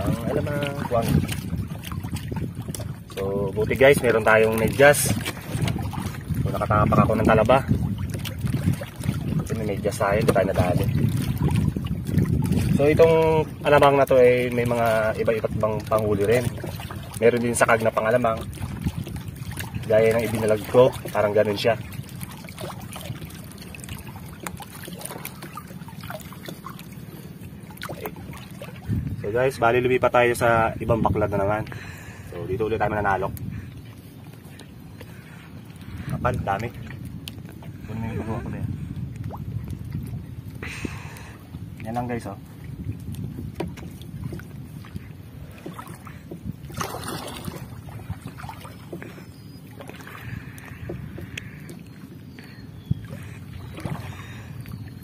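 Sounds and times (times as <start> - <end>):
water splashing and trickling: 0.0 - 55.0
wind rumbling on microphone: 0.0 - 55.0
small drips: 43.0 - 55.0.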